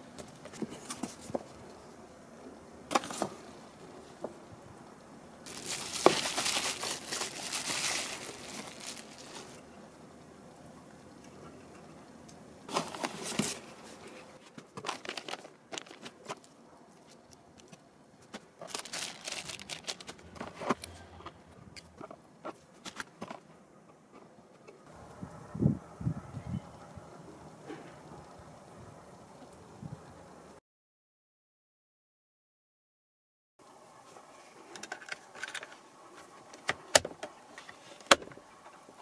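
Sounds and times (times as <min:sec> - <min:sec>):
bubble wrap crinkling: 0:05.4 - 0:09.6, 0:12.7 - 0:20.9.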